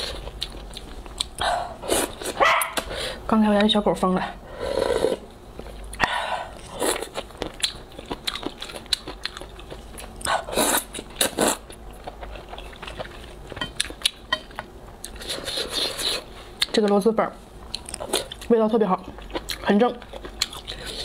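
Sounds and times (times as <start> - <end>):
wet chewing and smacking: 0.0 - 1.4, 7.0 - 16.7, 17.6 - 21.0.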